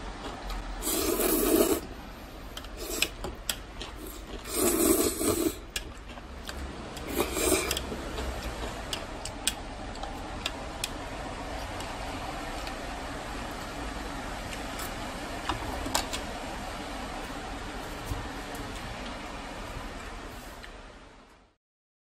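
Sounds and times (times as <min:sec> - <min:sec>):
noodles slurped and chewed: 0:00.0 - 0:15.8
chopsticks clicking against bowl: 0:05.7 - 0:11.0.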